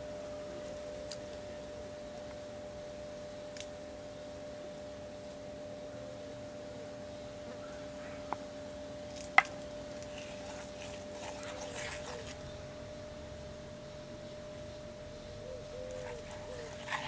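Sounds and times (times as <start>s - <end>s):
spoon squelching paste in mortar: 10.0s - 12.4s, 15.9s - 17.0s.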